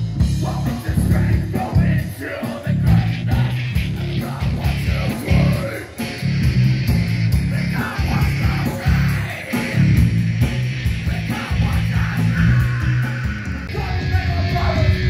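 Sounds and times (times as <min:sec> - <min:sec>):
heavy rock band playing: 0:00.0 - 0:15.0
vocalist yelling: 0:11.2 - 0:15.0.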